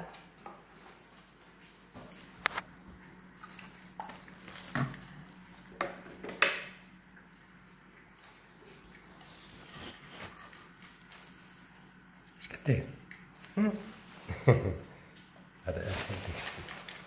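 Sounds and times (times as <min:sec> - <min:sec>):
plastic bag crinkling: 0:13.3 - 0:14.8, 0:15.7 - 0:17.0.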